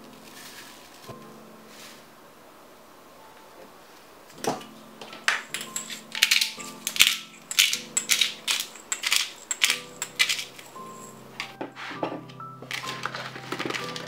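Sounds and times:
soft background music: 0.0s - 2.4s, 3.0s - 14.0s
pepper grinder crunching: 5.3s - 11.6s, 12.6s - 14.0s.

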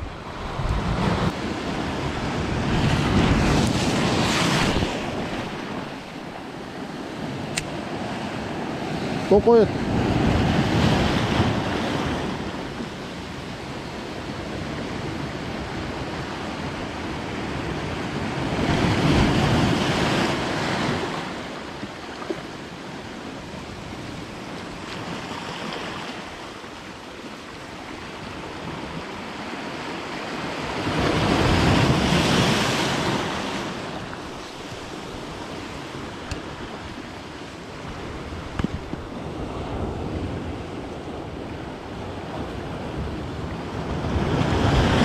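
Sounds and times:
wind on microphone: 0.0s - 21.2s, 30.3s - 45.0s.

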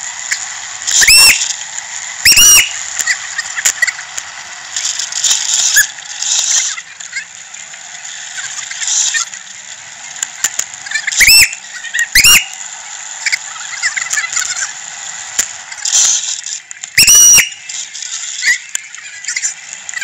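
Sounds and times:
shrill whistle toots: 0.9s - 1.5s, 2.2s - 2.9s, 11.1s - 12.6s, 16.9s - 17.8s.

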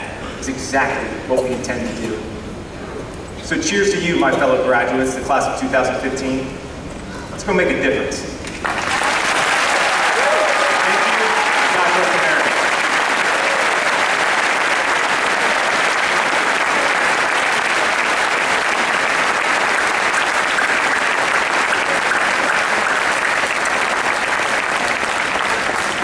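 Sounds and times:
audience applause: 8.6s - 26.0s.

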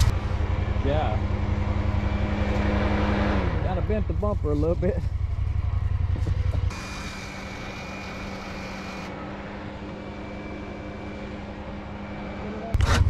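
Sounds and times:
loud low rumble: 0.0s - 6.9s
vehicle engine idling: 0.0s - 12.8s.

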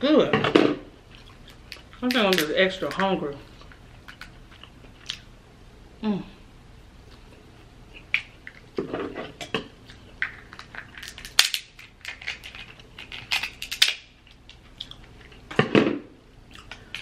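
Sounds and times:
shears cracking crab shell: 10.2s - 15.1s.

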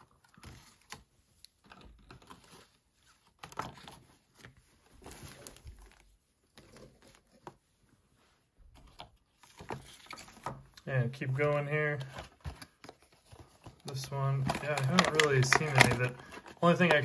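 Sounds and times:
plastic figures clicking: 13.8s - 17.0s.

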